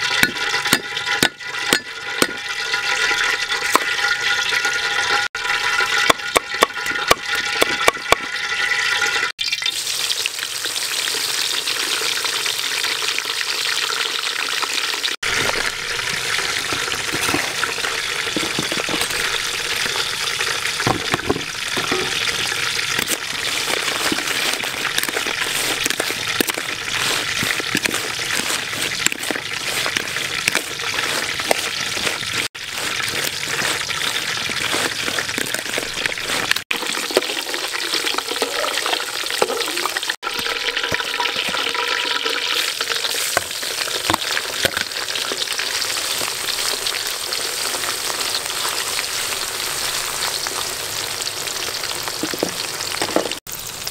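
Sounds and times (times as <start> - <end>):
frying in hot oil sizzling: 0.0 - 53.9
stirring in a wok: 20.7 - 46.3.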